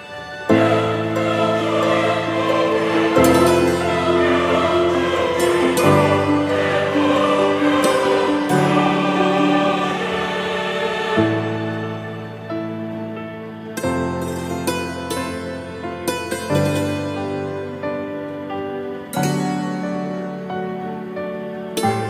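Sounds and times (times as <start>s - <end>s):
choir singing slow sustained chords: 0.0s - 22.0s.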